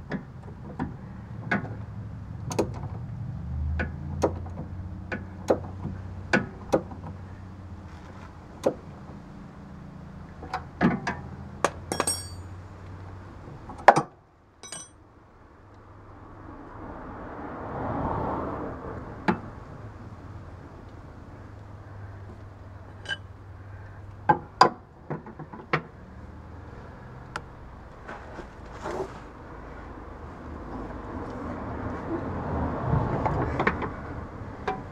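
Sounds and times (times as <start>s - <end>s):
wrench clinking on metal nut: 11.8s - 12.5s, 14.6s - 15.0s, 23.0s - 23.3s.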